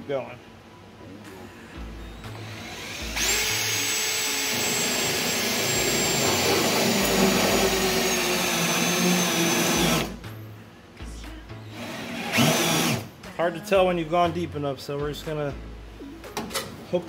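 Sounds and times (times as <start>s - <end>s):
cordless drill drilling metal: 2.1s - 10.2s, 11.7s - 13.1s.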